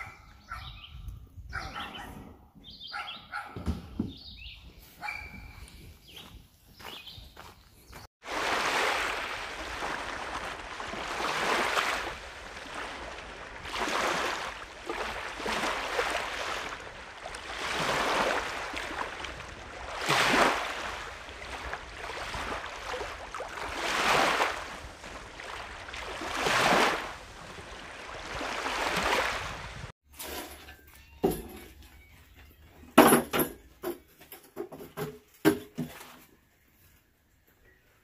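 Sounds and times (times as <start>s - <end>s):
waves washing onto sandy beach: 8.2s - 29.9s.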